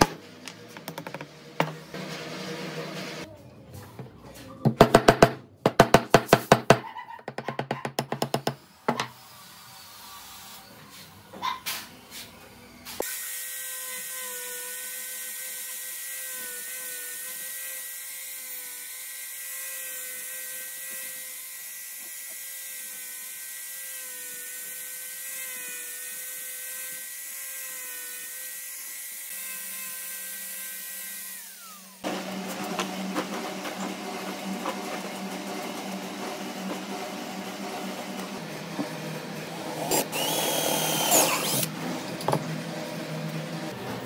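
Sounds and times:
angle grinder sanding wood: 12.1s - 41.7s.

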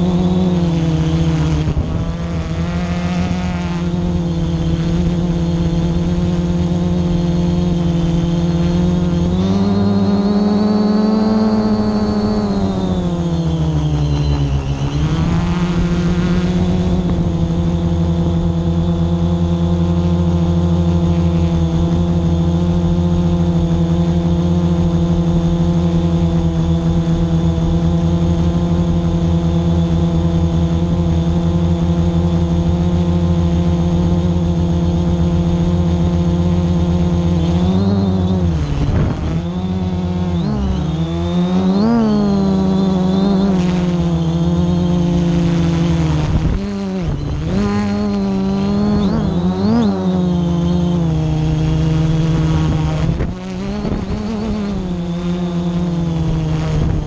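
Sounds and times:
drone propellers buzzing: 0.0s - 57.0s.

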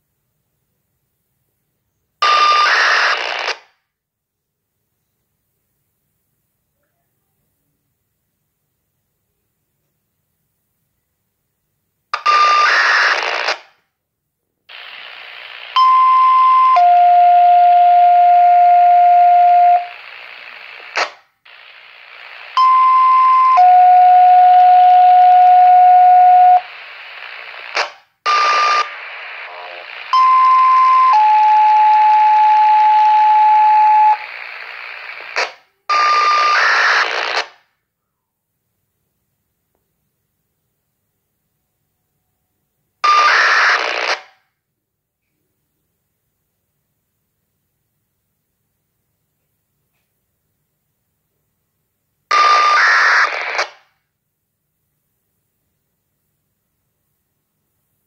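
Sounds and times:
radio noise bursts with beep: 2.3s - 3.6s, 14.7s - 15.9s, 16.5s - 37.5s, 43.1s - 44.2s, 52.3s - 53.8s
two-tone radio pages: 12.2s - 13.6s, 14.7s - 37.5s, 43.0s - 44.3s, 52.3s - 53.8s
radio hiss: 14.7s - 15.8s, 18.7s - 22.6s, 23.6s - 37.5s, 43.1s - 44.2s, 52.3s - 53.8s.

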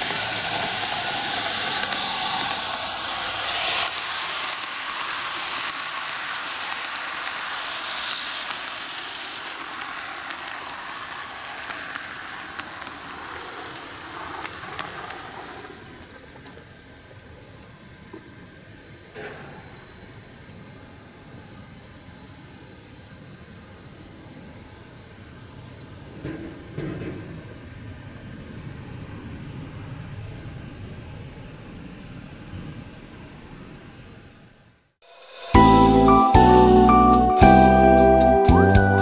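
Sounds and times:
model train wheels rushing: 0.0s - 21.6s.

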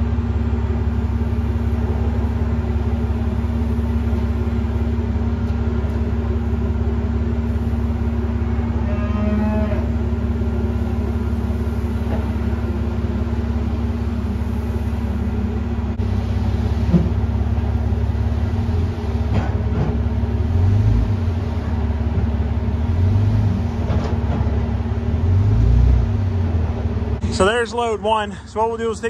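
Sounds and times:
short clunks: 16.8s - 17.2s.

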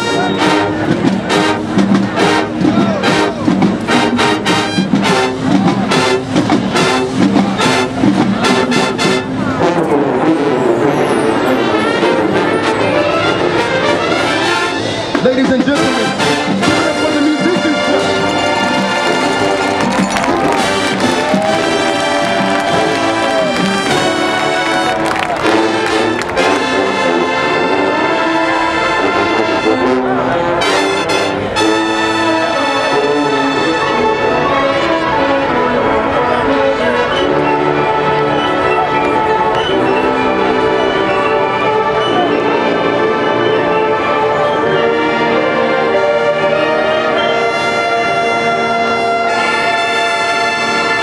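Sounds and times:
drumline beat: 0.0s - 9.6s, 15.0s - 27.2s
brass chords: 0.0s - 51.0s
marching band playing: 0.0s - 51.0s
trumpets and trombones: 0.0s - 51.0s.

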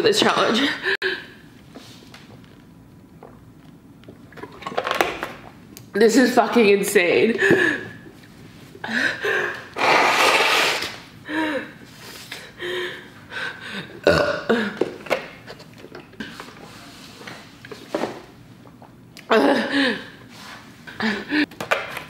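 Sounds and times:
woman blowing her nose: 9.7s - 11.0s.

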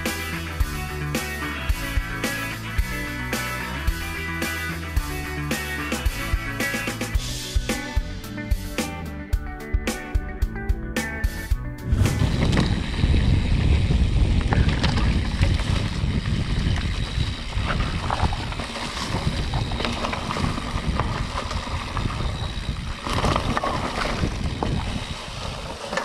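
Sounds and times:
bike rattles and clicks: 11.2s - 26.0s
wind rumbling on microphone: 11.7s - 26.0s.

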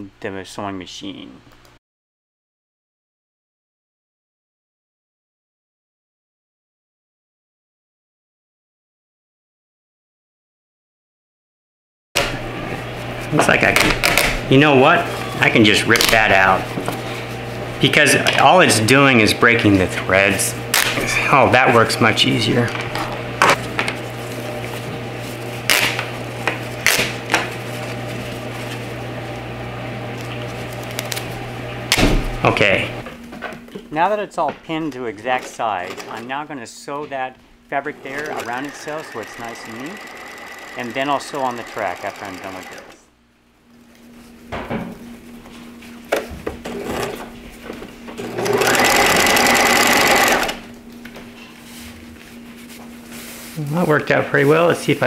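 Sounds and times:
sewing machine stitching: 38.0s - 43.0s, 48.2s - 50.6s.

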